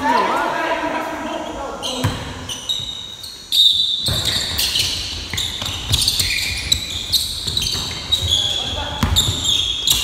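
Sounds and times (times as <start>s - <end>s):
sneakers squeaking on floor: 1.1s - 10.0s
basketball bouncing thuds: 5.2s - 10.0s.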